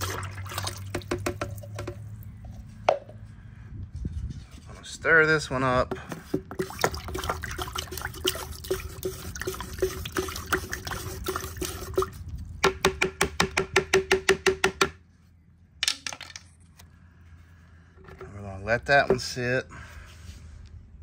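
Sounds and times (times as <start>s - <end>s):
liquid sloshing: 0.0s - 2.0s, 6.4s - 12.5s
stick tapping plastic pitcher: 0.0s - 2.1s, 5.9s - 14.8s.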